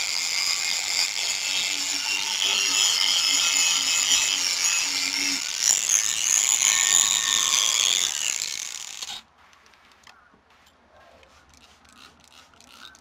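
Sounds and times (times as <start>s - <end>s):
drill motor whir: 0.0s - 9.2s.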